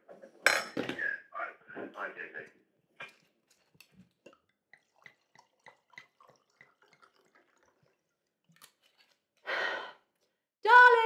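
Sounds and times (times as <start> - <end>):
wine pouring into a glass: 4.2 - 8.7.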